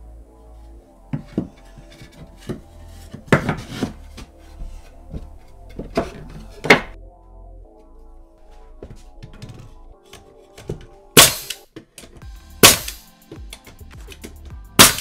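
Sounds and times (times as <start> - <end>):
soft background music: 0.0 - 15.0
wooden boards knocking and scraping: 1.1 - 7.0, 8.8 - 11.1.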